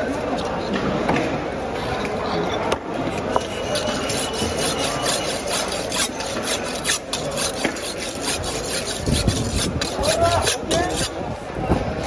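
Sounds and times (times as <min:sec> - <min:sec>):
knife scraping on sharpening stone: 0:03.3 - 0:11.2.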